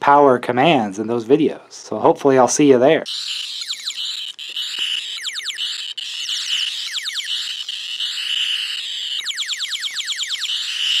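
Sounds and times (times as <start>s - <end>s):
falling electronic zaps: 3.1s - 11.0s
high buzzing tone: 3.1s - 11.0s.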